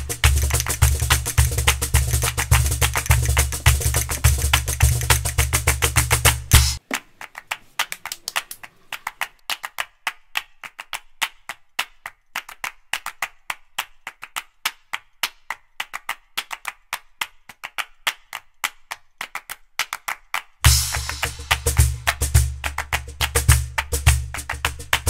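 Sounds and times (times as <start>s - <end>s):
quick dry percussion clicks: 0.0s - 6.8s.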